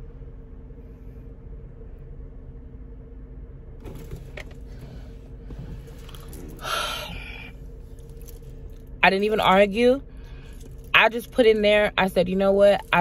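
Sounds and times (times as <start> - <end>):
car cabin hum: 0.0 - 13.0
woman sighing: 6.6 - 7.5.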